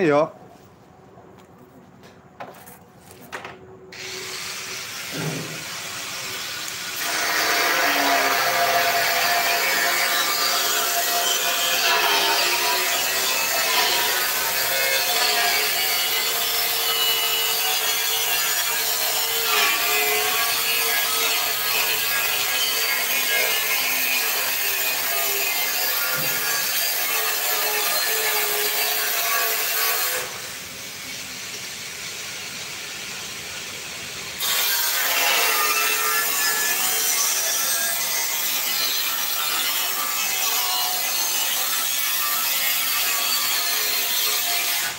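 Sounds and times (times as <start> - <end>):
angle grinder cutting steel: 3.9 - 31.2, 34.4 - 44.9.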